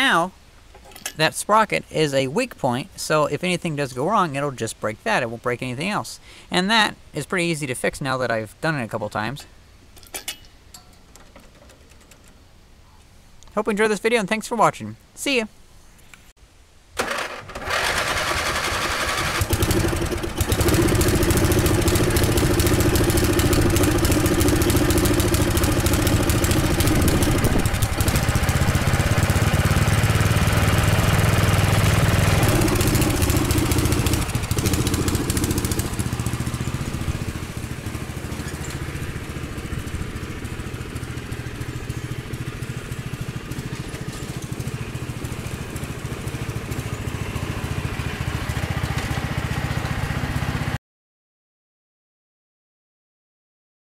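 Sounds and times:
riding lawn mower engine: 10.8s - 12.4s, 17.0s - 50.8s.

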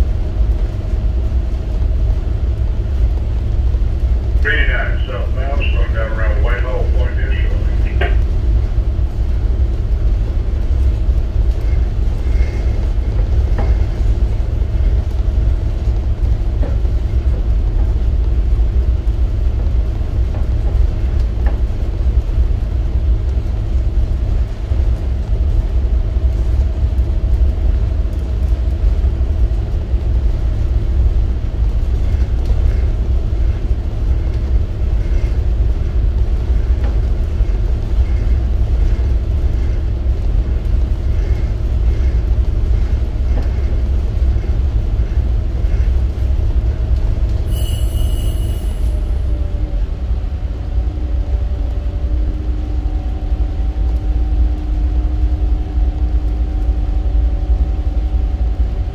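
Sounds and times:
diesel engines rumbling: 0.0s - 58.9s.

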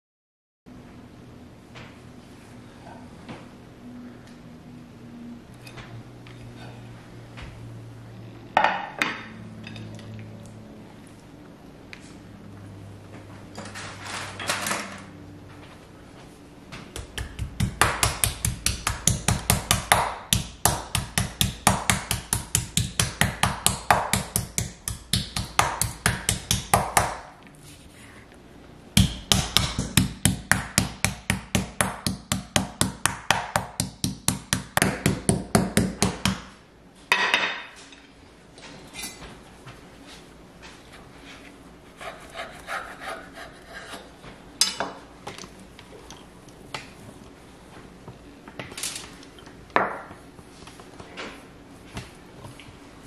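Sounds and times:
meat mallet pounding on board: 17.0s - 27.2s, 29.0s - 36.5s.

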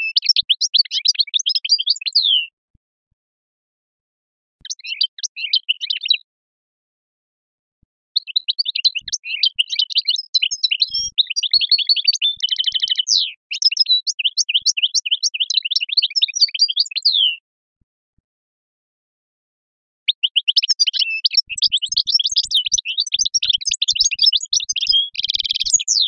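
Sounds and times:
goldfinch singing: 0.0s - 2.5s, 4.6s - 6.2s, 8.2s - 17.4s, 20.1s - 26.0s.

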